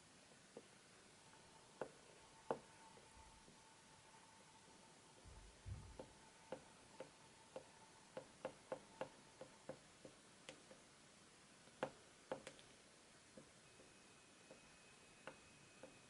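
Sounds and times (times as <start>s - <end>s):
soft low thump: 5.3s - 6.0s.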